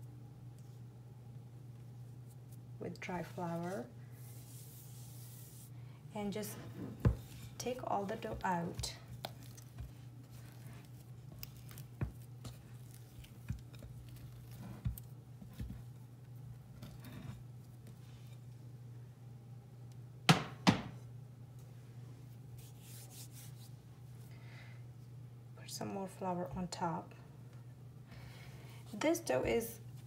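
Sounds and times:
steady low hum: 0.0 - 30.0
faint knocks and rubs: 6.3 - 15.9.

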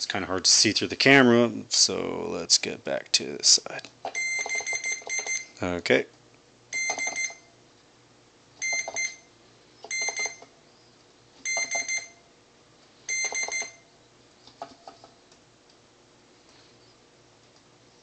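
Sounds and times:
multimeter continuity beeps: 4.1 - 5.6, 6.7 - 7.5, 8.6 - 10.6, 11.4 - 12.2, 13.1 - 13.9.

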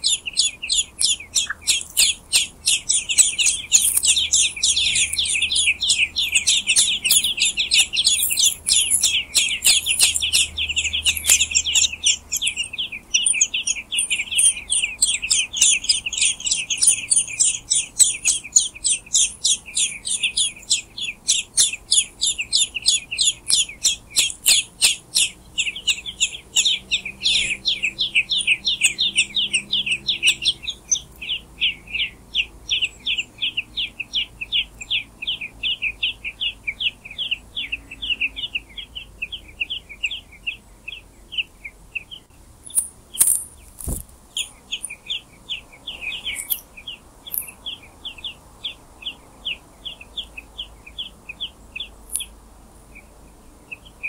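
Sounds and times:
nestlings cheeping: 0.0 - 31.4, 42.6 - 47.9, 52.1 - 52.3.

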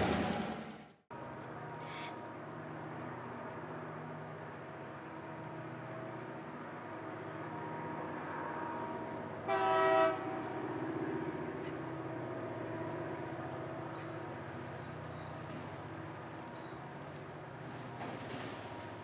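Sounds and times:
diesel locomotive engines droning: 0.0 - 19.0
locomotive horn blast: 7.6 - 10.7.

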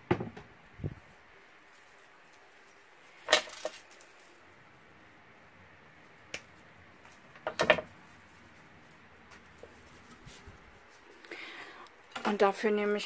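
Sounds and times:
tools clattering on a table: 3.2 - 3.9, 7.4 - 8.0.

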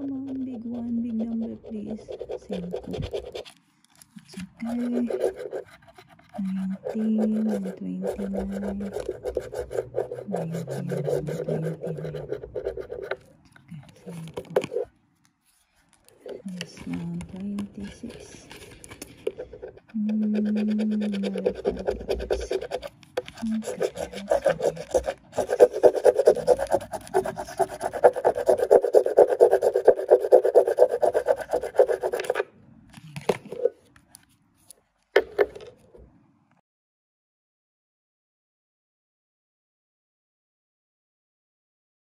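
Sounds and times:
fingernail scratching paper ticket: 0.0 - 3.6, 4.2 - 14.9, 16.0 - 32.4.

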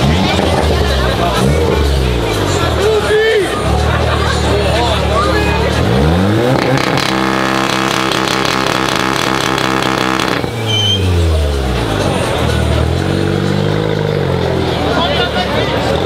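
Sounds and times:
car engine revving: 0.0 - 16.0
engine whistle: 8.4 - 11.4.

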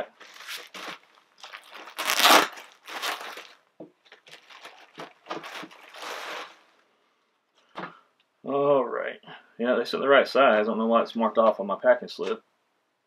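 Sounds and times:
packaging crinkling and rustling: 0.0 - 6.8.

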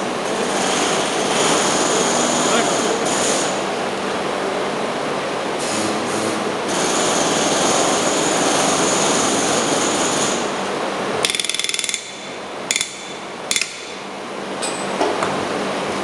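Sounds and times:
air blasts: 5.6 - 8.0
rivet gun rapid hammering: 11.3 - 14.0.

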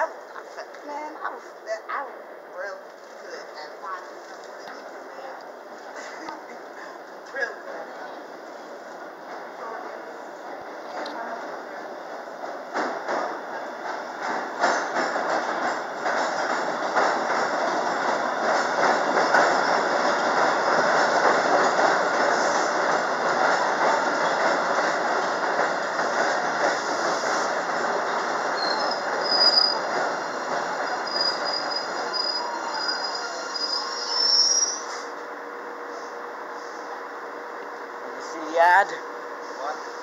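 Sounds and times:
train wheels rumbling on rails: 3.8 - 37.0
brake and wheel squeals: 28.6 - 35.1.

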